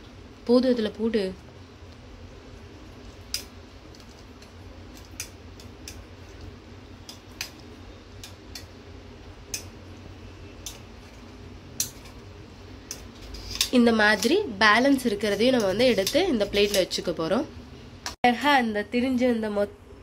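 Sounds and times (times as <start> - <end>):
low steady hum: 0.0 - 20.0
spoon scraping metal strainer: 12.8 - 17.1.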